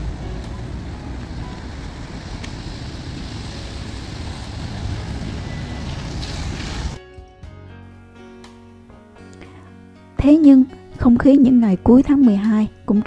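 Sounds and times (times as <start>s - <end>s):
bus passing: 0.0s - 7.0s
tyres hissing on wet road: 0.0s - 7.0s
quiet music: 0.0s - 13.0s.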